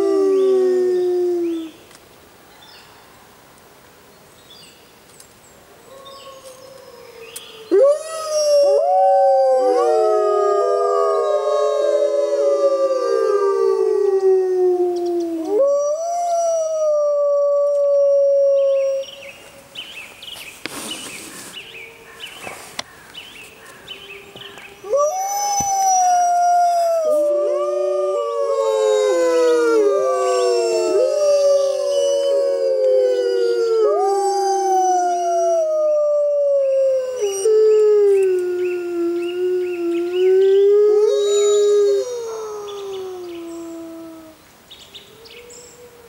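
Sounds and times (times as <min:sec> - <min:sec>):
wolves howling in chorus: 0:06.0 - 0:19.0, 0:24.9 - 0:44.4.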